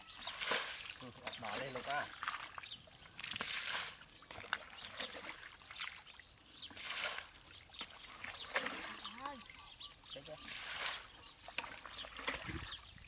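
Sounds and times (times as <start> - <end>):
muddy water splashing: 0.0 - 13.0.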